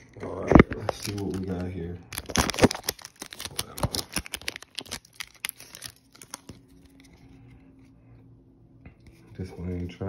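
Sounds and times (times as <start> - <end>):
foil wrapper crinkling: 0.3 - 7.5.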